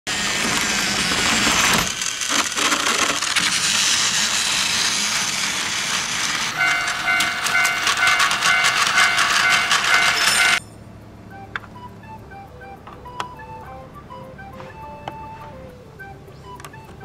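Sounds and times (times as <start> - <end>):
toy train motor whir: 0.1 - 10.6
toy train wheel clatter: 0.1 - 10.6
electronic crossing warning beeps: 6.5 - 10.8.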